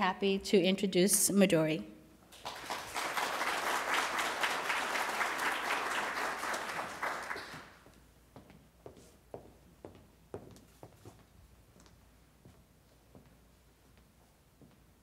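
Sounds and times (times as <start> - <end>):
audience applauding: 2.3 - 7.8.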